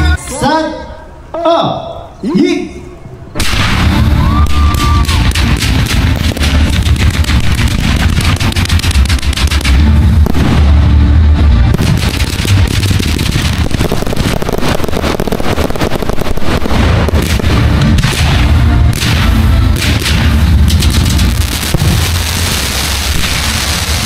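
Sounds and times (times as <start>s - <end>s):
music with heavy bass: 3.7s - 13.8s
ground fountains crackling: 4.2s - 10.4s, 11.8s - 18.4s, 19.0s - 24.0s
fireworks shells bursting: 4.6s - 10.8s, 11.7s - 24.0s.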